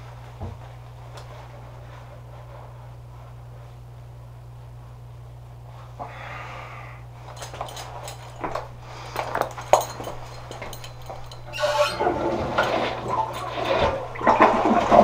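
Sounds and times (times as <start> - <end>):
man breathing through nose: 6.0 - 7.1, 8.8 - 9.4
knocks and rustles: 7.3 - 15.0.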